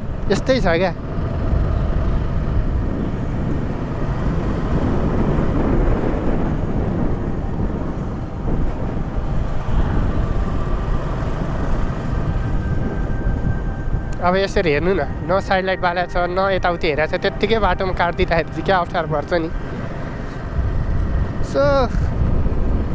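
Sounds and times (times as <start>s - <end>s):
motorcycle engine running: 0.0s - 15.3s
wind rumble on microphone: 0.0s - 22.9s.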